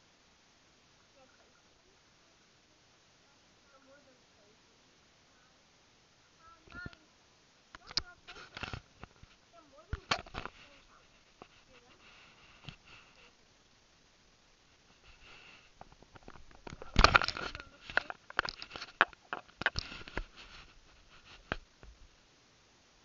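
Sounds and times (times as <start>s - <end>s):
camera handling rustles and knocks: 7.8s - 12.9s, 15.8s - 21.7s.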